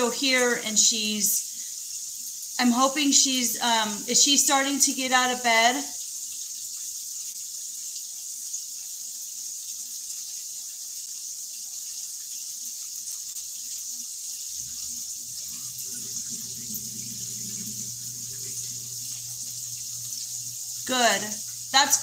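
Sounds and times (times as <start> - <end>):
food sizzling in a pan: 0.0 - 22.0
low steady hum: 14.6 - 22.0.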